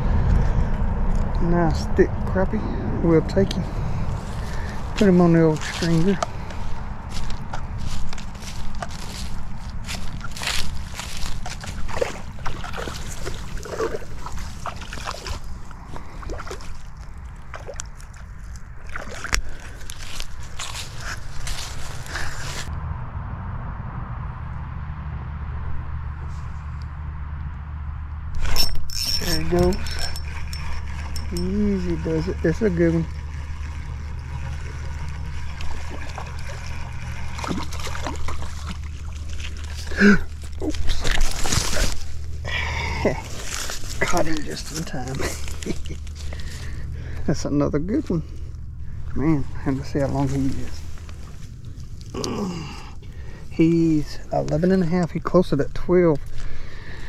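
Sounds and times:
steady low rumble: 0.0 - 57.0
fish splashing in water: 6.3 - 22.1, 29.8 - 42.5.

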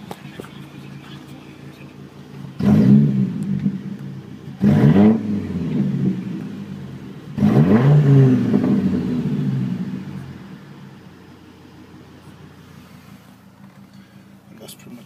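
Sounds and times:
truck exhaust revving from idle: 1.9 - 13.4.

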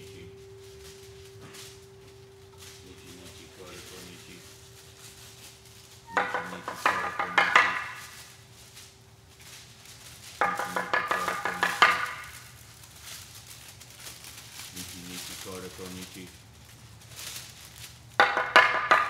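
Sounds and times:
ceramic percussion ringing notes: 0.0 - 8.4.

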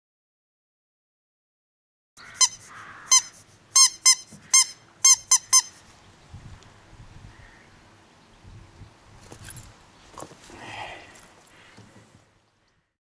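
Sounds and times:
squeaky dog toy squeaks: 2.2 - 5.9.

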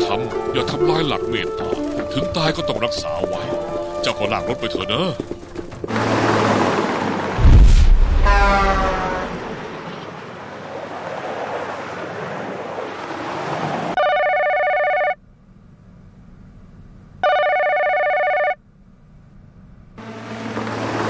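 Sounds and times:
steady rushing noise: 6.2 - 9.9
telephone ringing: 14.0 - 15.2, 17.2 - 18.6.

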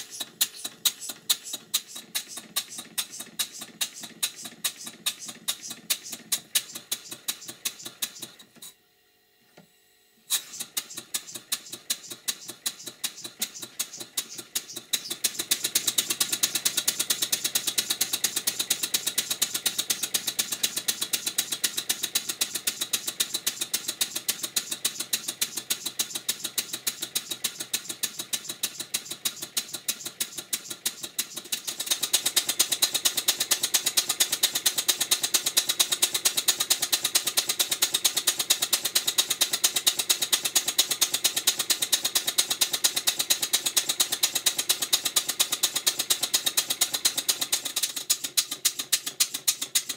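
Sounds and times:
steam engine exhaust beat with hiss: 0.0 - 8.4, 10.3 - 49.9.

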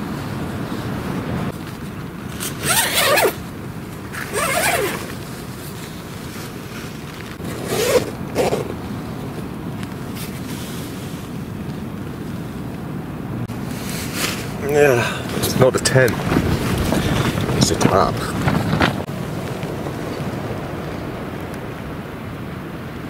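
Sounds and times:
low wind noise: 0.0 - 23.0
zippers being pulled open: 2.4 - 3.4, 4.2 - 5.2, 7.4 - 8.8.

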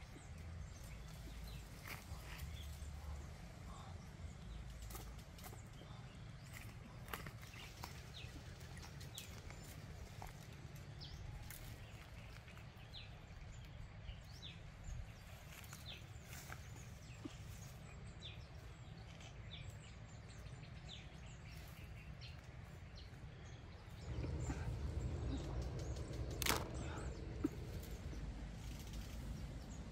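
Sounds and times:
steady low rumble: 0.0 - 29.9
branches snapping and rustling: 0.1 - 3.4, 4.5 - 13.8, 15.0 - 17.8, 23.8 - 29.9.

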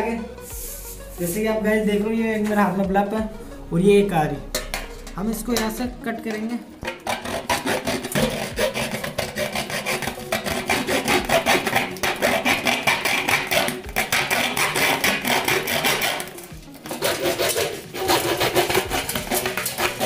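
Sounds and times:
saw rasping through metal cap: 6.8 - 20.0.

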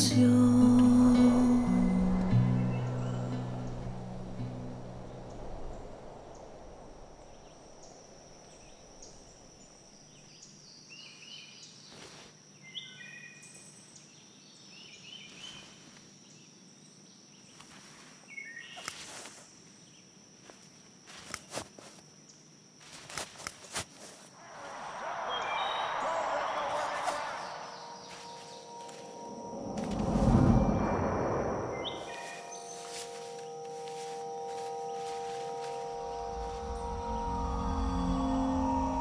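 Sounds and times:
steady thin high tone: 0.0 - 9.6, 24.4 - 39.0
birds chirping: 0.0 - 11.8, 24.4 - 39.0.

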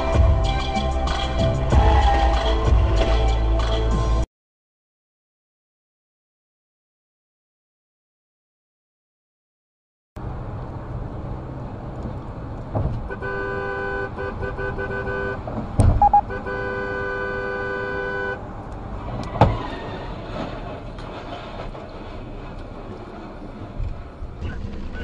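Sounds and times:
road noise inside a car: 10.2 - 25.0
thump: 12.7 - 13.1, 15.8 - 16.1
car horn honking: 13.0 - 18.5.

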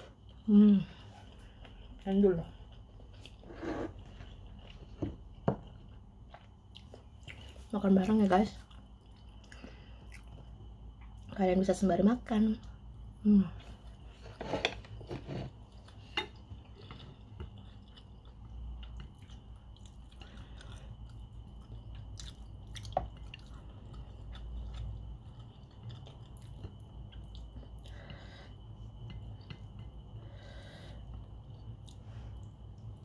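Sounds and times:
chewing and mouth smacks: 5.6 - 7.7, 8.6 - 11.3, 15.8 - 27.9.

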